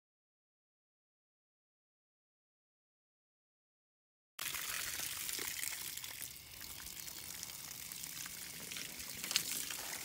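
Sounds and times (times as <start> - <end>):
spray splashing off hide: 4.4 - 10.0
water spraying from a hose: 4.4 - 10.0.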